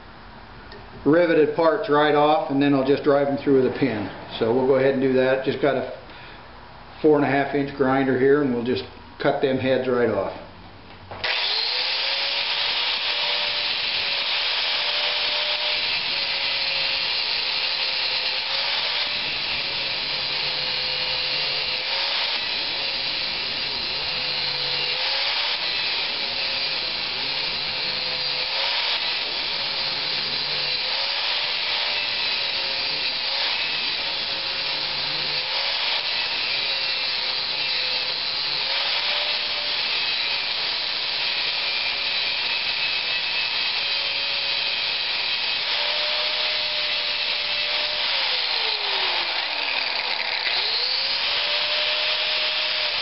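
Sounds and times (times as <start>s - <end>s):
angle grinder grinding metal: 11.2s - 53.0s.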